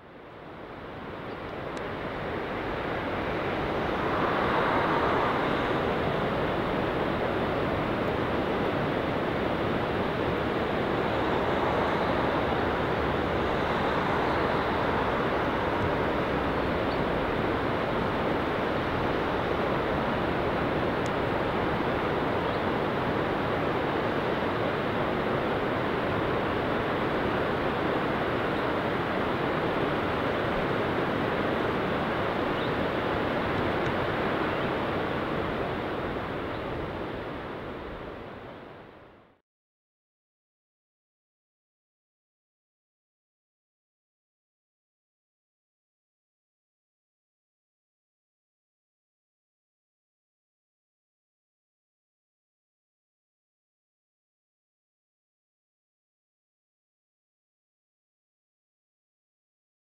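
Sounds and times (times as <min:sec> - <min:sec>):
steady rushing noise: 0:00.0 - 0:39.4.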